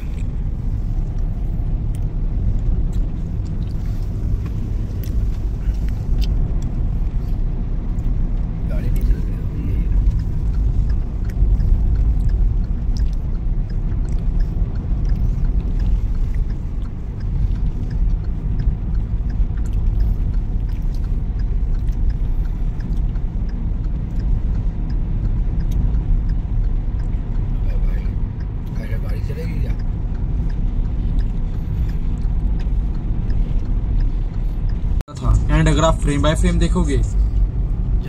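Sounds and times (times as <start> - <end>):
car cabin road rumble: 0.0 - 38.0.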